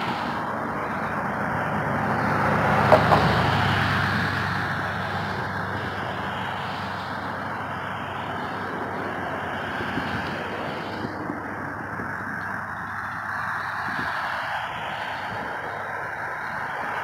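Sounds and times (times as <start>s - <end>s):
car passing close: 0.0s - 17.0s.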